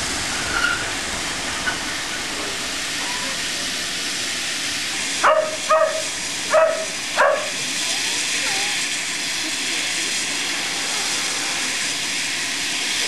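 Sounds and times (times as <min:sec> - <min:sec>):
steam hissing: 0:00.0 - 0:13.0
steam locomotive passing: 0:00.0 - 0:13.0
dog barking: 0:05.2 - 0:07.6.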